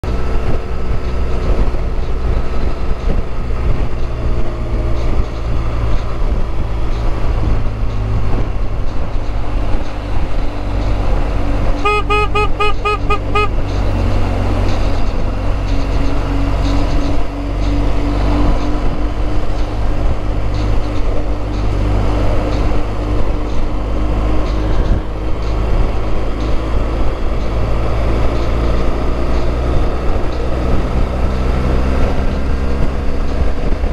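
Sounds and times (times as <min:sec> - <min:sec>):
motorcycle engine rumble: 0:00.0 - 0:33.9
wind noise: 0:00.0 - 0:33.9
horn short beeps: 0:11.8 - 0:13.6.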